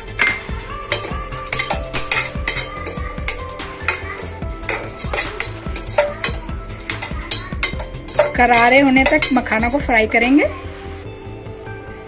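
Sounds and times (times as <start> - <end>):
ladle scraping metal saucepan: 0.1 - 10.0.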